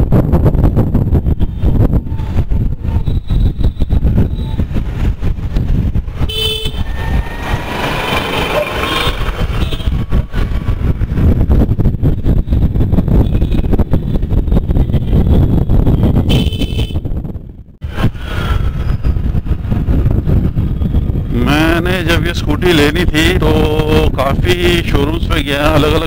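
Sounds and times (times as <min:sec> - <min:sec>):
surrounding traffic: 0:00.0 - 0:26.0
wind and road rumble: 0:00.0 - 0:26.0
vehicle horn toot: 0:06.3 - 0:07.5, 0:08.8 - 0:10.0, 0:16.2 - 0:17.0.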